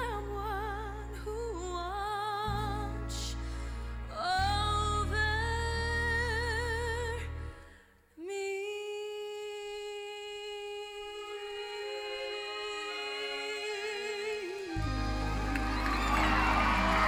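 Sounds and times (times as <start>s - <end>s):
woman singing with vibrato: 0.0s - 3.4s, 8.2s - 16.9s
low sustained accompaniment: 14.6s - 17.0s.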